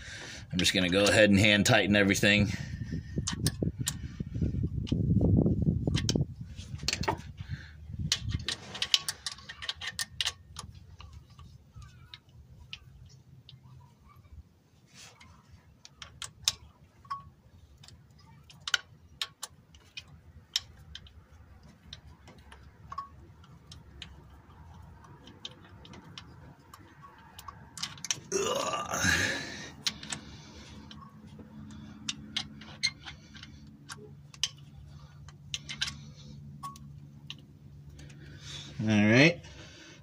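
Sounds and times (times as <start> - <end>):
metallic clicks of socket wrench: 5.9 - 6.2, 15.9 - 28.2, 30.8 - 37.4.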